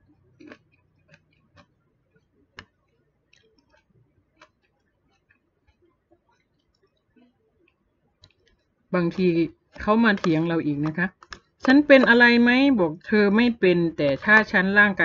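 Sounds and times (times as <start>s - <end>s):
fork tapping plastic container: 9.2s - 12.7s.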